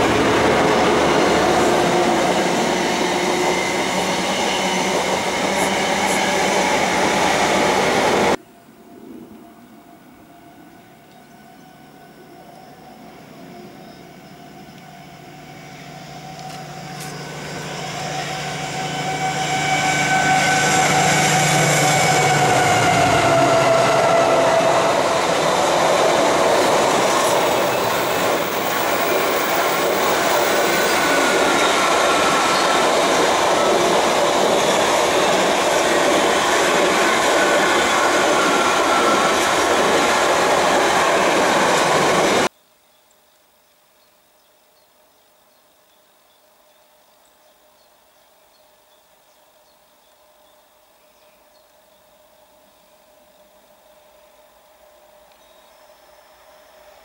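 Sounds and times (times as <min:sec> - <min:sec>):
diesel locomotive engine drone: 0:00.0 - 0:08.4, 0:09.3 - 0:42.5
train wagons rushing past: 0:00.0 - 0:08.4, 0:13.0 - 0:42.5.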